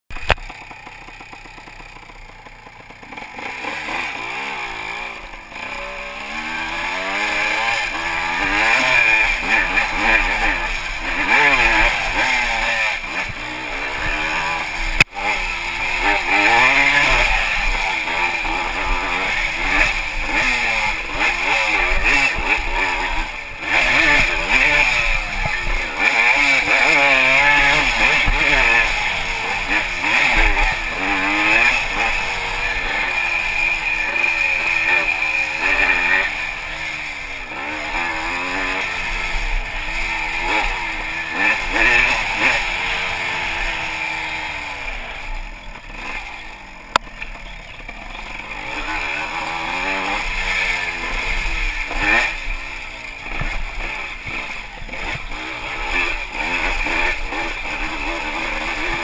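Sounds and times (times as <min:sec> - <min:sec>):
sharp click: 0:00.1 - 0:00.5, 0:46.9 - 0:47.4
motorcycle engine revving: 0:00.1 - 0:59.0.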